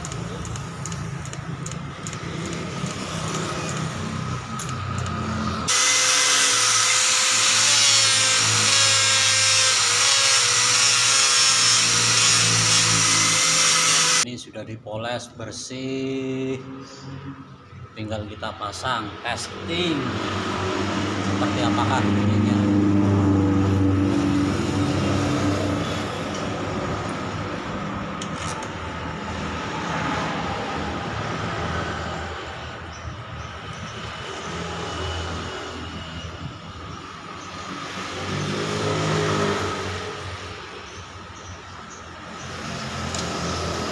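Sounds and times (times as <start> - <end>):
vehicle engines droning: 0.0 - 6.3, 15.4 - 43.9
angle grinder grinding metal: 0.0 - 14.2.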